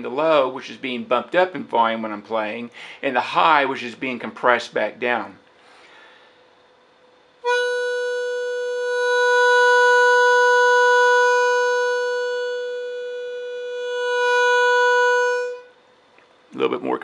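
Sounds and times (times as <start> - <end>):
harmonica holding one note: 7.4 - 15.8.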